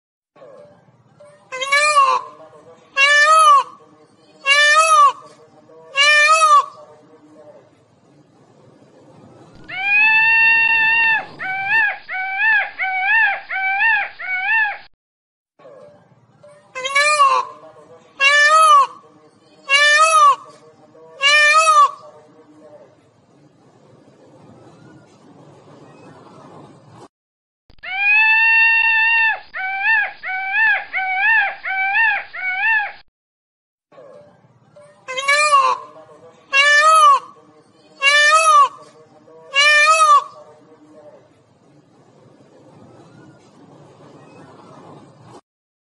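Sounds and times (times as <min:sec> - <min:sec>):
peacock calling: 0:01.5 - 0:02.4, 0:03.0 - 0:03.8, 0:04.4 - 0:05.3, 0:05.9 - 0:06.9, 0:09.6 - 0:14.8, 0:16.7 - 0:19.0, 0:19.6 - 0:20.6, 0:21.2 - 0:22.2, 0:27.8 - 0:33.0, 0:34.9 - 0:37.4, 0:38.0 - 0:40.5.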